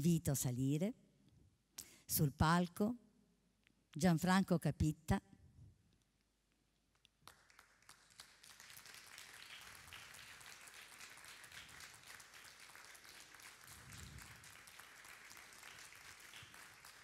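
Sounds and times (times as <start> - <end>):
faint audience applause: 7.2 - 17.0.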